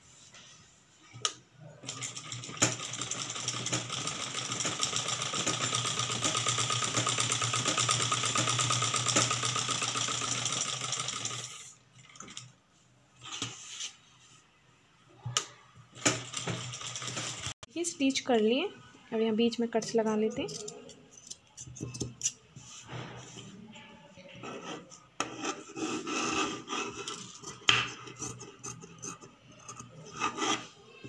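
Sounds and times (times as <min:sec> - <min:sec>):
sewing machine stitching: 0:01.8 - 0:12.4, 0:16.0 - 0:17.6.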